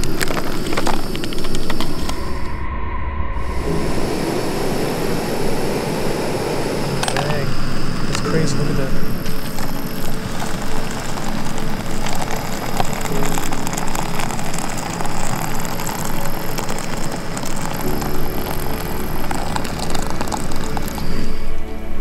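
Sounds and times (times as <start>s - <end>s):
boiling water pouring and splashing: 0.0s - 2.1s, 8.0s - 21.6s
low hum: 0.0s - 22.0s.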